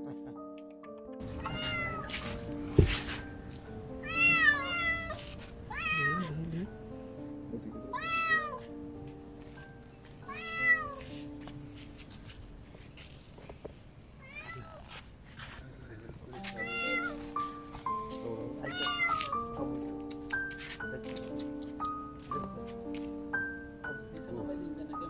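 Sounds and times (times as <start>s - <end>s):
background music: 0.0s - 12.6s, 16.3s - 25.0s
kitten meowing in distress: 1.3s - 2.2s, 4.0s - 6.6s, 7.9s - 8.7s, 10.3s - 11.1s, 14.2s - 14.8s, 16.6s - 17.4s, 18.7s - 19.4s.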